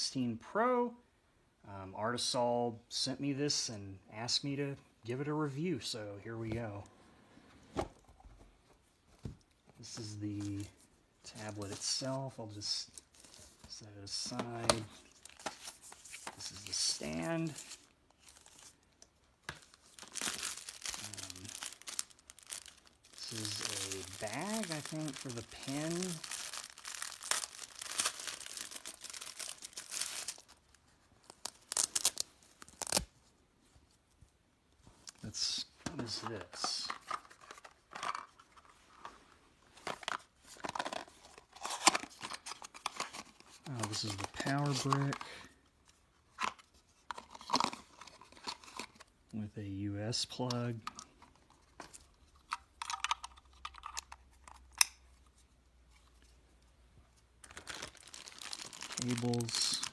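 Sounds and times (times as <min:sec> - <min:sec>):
plastic packaging crinkling and tearing: 0:13.0 - 0:33.1, 0:39.8 - 0:45.5, 0:46.4 - 0:49.1, 0:57.4 - 0:59.9.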